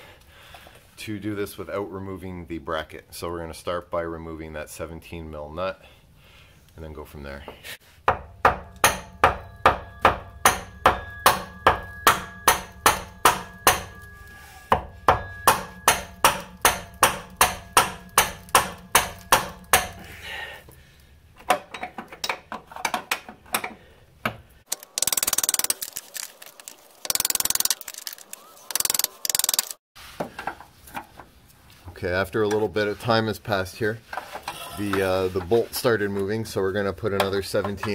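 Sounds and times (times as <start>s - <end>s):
hammer striking metal wrench: 8.1s - 20.0s, 24.7s - 25.8s.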